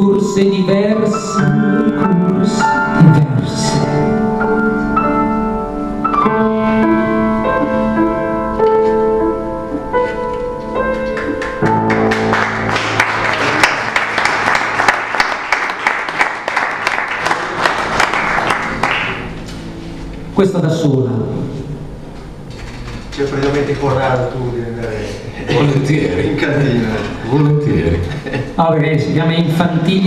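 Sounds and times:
piano playing: 0.0 - 30.0
audience clapping: 11.0 - 19.6.

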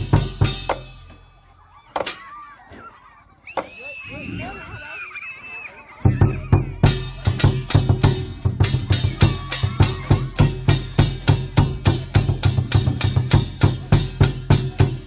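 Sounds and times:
drum and cymbal music: 0.0 - 1.4, 6.1 - 15.0.

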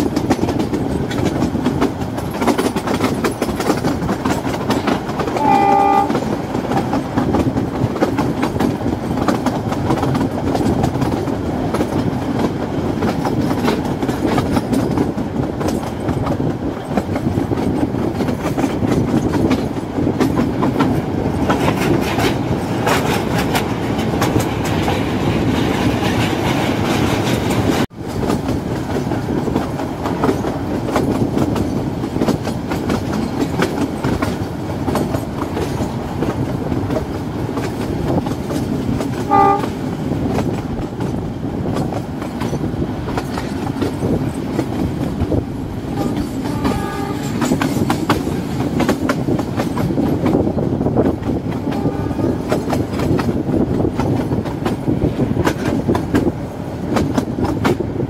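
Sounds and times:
train rumble: 0.0 - 58.0
train wheels clattering on rails: 0.0 - 58.0
locomotive horn: 5.3 - 6.3, 39.3 - 39.8, 45.9 - 47.4, 51.6 - 52.6.

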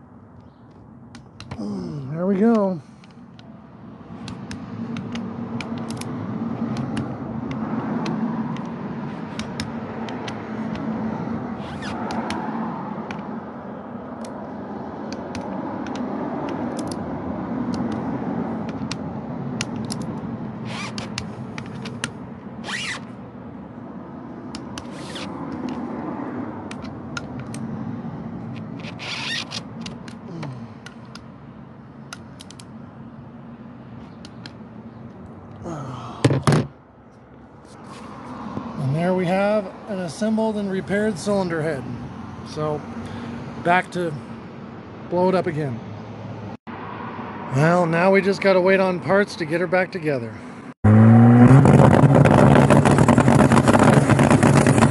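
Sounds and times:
sharp metallic clicks: 4.2 - 10.9, 15.1 - 17.0, 17.7 - 19.0, 19.6 - 20.2, 32.1 - 32.7.

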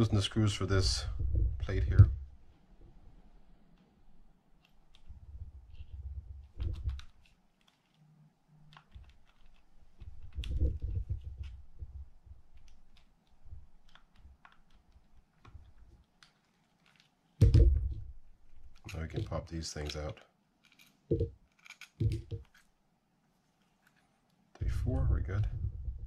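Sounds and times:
screwdriver metallic clicks and scrapes: 19.8 - 22.7.

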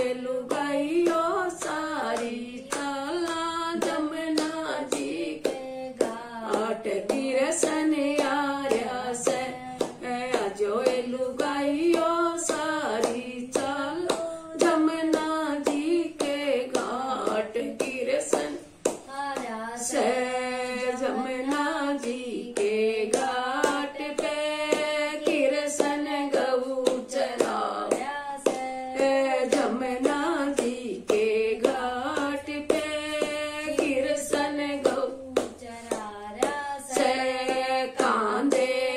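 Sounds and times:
hand claps: 0.0 - 38.9
woman singing: 0.0 - 38.9.

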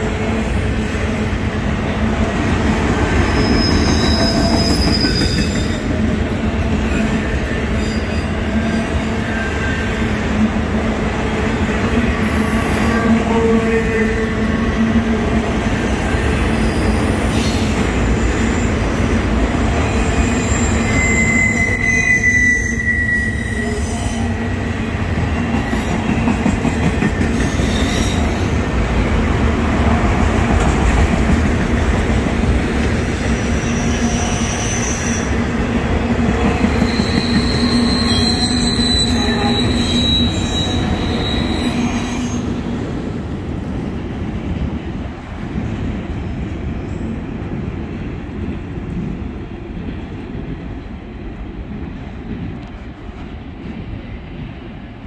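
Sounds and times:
freight train rumbling on rails: 0.0 - 55.0
high-pitched wheel squeals: 3.3 - 5.8, 20.2 - 24.3, 36.7 - 42.5.

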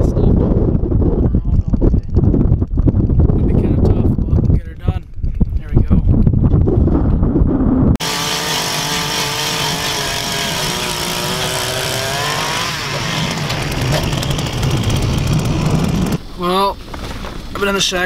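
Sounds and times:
power ice auger drilling: 8.0 - 16.2.

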